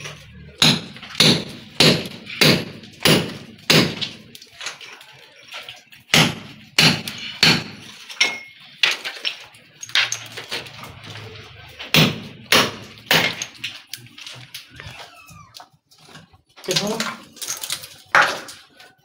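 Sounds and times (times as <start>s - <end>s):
hammer striking masonry wall: 0.0s - 4.5s, 6.0s - 9.3s, 11.8s - 13.8s, 18.1s - 18.8s.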